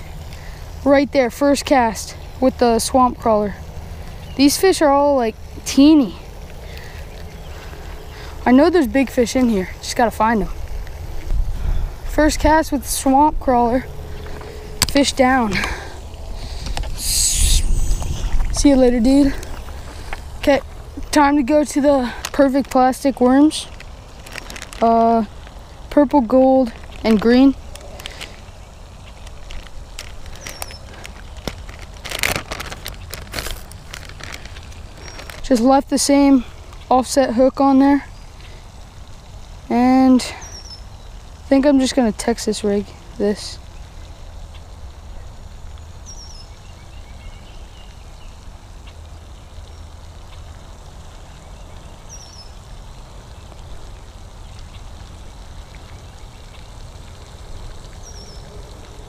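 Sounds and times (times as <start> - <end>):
faint hiss: 0.0 - 59.0
low rumble: 10.5 - 22.3
plastic bag crinkling: 13.8 - 35.7.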